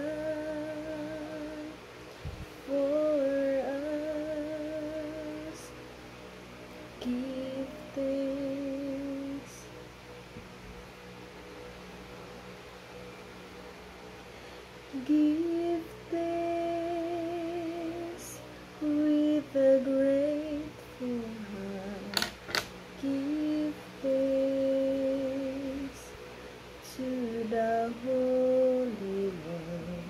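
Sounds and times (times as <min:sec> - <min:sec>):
woman singing: 0:00.0 - 0:01.8, 0:02.6 - 0:05.7, 0:07.0 - 0:09.7, 0:14.9 - 0:26.1, 0:26.8 - 0:30.0.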